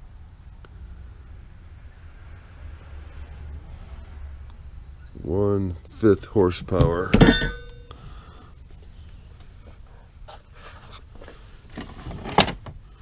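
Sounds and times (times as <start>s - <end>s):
metal motor set down with clunk: 7.1s - 7.8s
faint scraping and handling: 8.4s - 12.4s.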